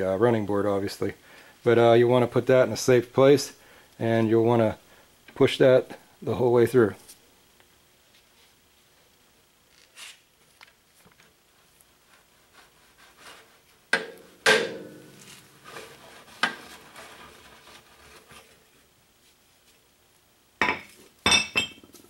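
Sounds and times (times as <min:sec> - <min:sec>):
metallic knocks and clanks: 0:14.0 - 0:15.0.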